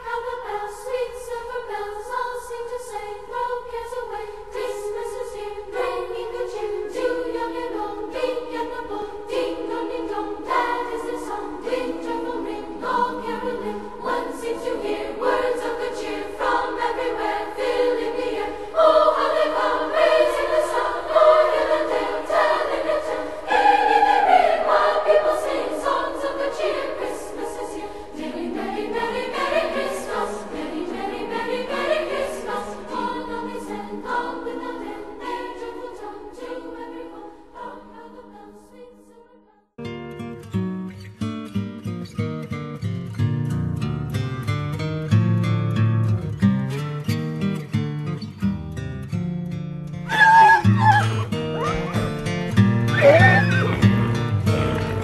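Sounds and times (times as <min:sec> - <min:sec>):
choir singing: 0:00.0 - 0:39.8, 0:50.1 - 0:52.2, 0:52.9 - 0:55.0.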